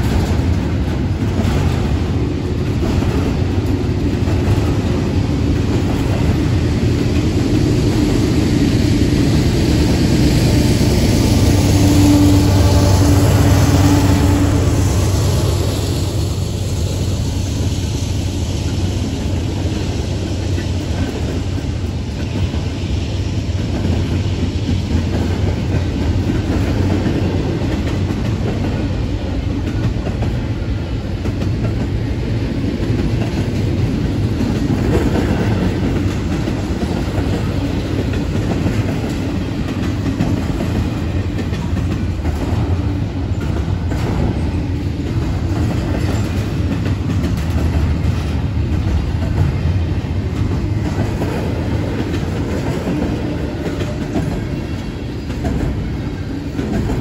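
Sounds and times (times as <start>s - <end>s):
steel wheels rumbling on rails: 0.0s - 57.0s.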